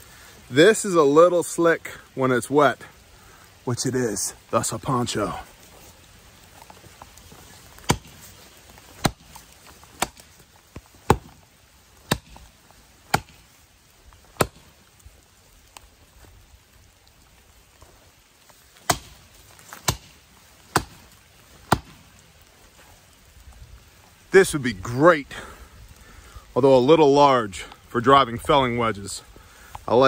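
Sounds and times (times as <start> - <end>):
axe chopping into a tree trunk: 7.8 - 8.3, 8.9 - 11.4, 12.0 - 13.5, 14.3 - 14.7, 18.8 - 22.1.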